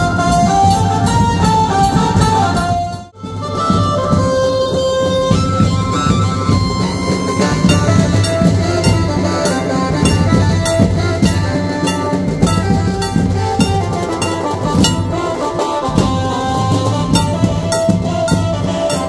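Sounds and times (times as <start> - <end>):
banjo band playing procession music: 0.0 - 19.0
sharp drum hits: 5.2 - 19.0.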